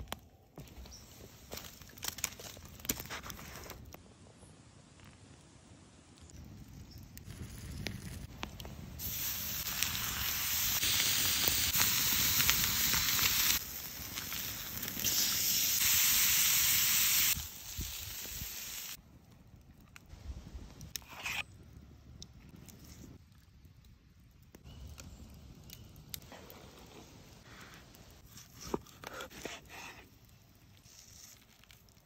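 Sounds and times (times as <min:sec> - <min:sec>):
faint crackles and ticks: 0:04.9 - 0:08.8, 0:18.2 - 0:32.0
steaks sizzling on hot stone: 0:09.0 - 0:19.0.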